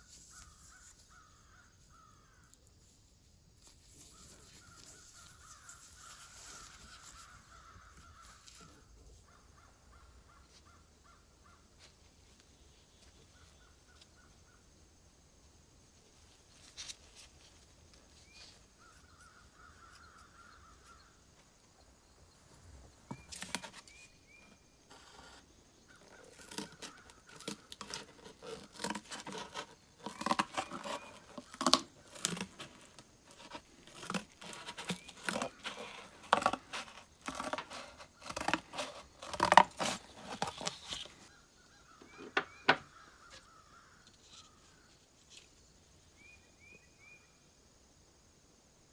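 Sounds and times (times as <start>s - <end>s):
scissors snipping cardboard: 26.0s - 41.1s.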